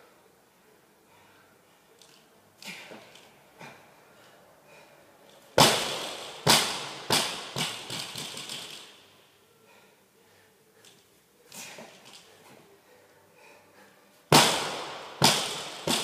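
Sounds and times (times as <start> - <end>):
barbell bouncing thuds: 5.6 - 8.9, 14.3 - 16.0
barbell impact on rubber floor: 5.6 - 8.9, 14.3 - 16.0.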